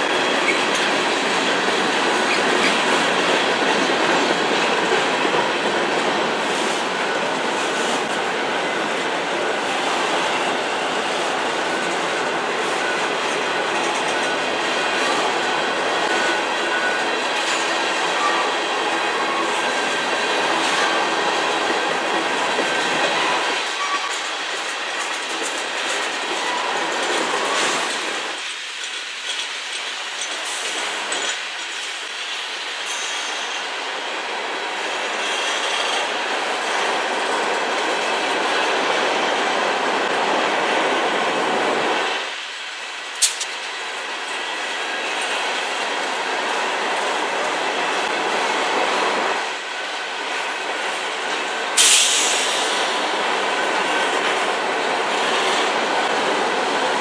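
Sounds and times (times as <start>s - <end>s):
train wheels rumbling on rails: 0.0s - 57.0s
sharp click: 43.2s - 43.5s.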